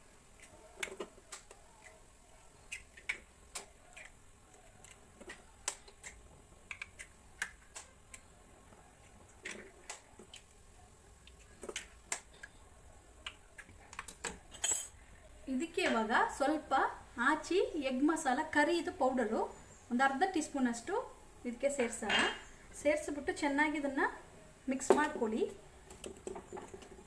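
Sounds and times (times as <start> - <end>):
eggshells cracking on steel bowl: 2.6 - 8.3.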